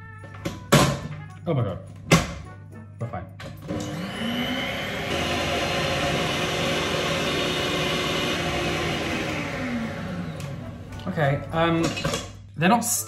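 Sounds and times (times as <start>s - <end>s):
electric mixer whipping: 3.6s - 11.1s.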